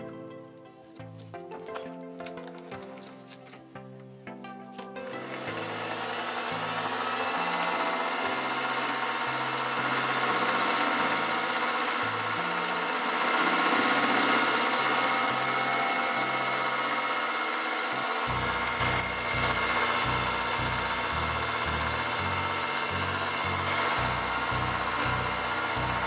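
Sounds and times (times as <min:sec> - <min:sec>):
lathe cutting metal: 0:05.2 - 0:26.0.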